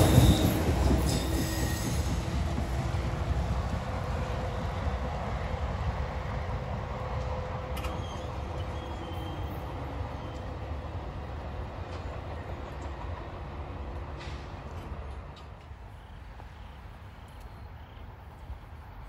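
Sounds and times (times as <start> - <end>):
train rumbling: 0.0 - 19.0.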